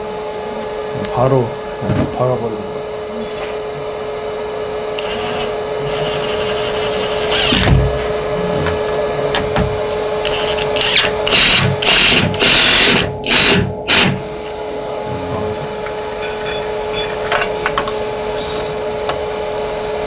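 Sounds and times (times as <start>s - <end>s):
steady hum: 0.0s - 20.0s
impact driver driving screw: 5.0s - 7.9s, 10.2s - 14.2s.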